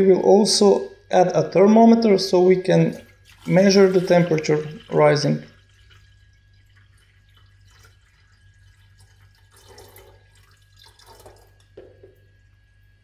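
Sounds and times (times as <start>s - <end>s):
water dripping into kettle: 3.0s - 12.7s.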